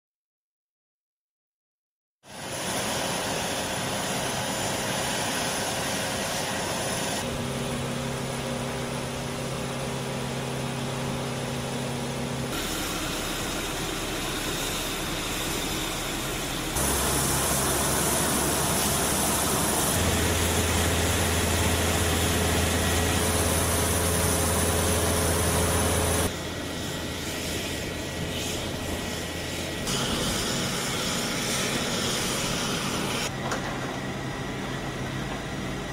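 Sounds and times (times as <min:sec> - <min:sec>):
aircraft engines running: 0:02.3 - 0:35.9
high whine: 0:03.5 - 0:35.9
ground equipment humming: 0:07.2 - 0:35.9.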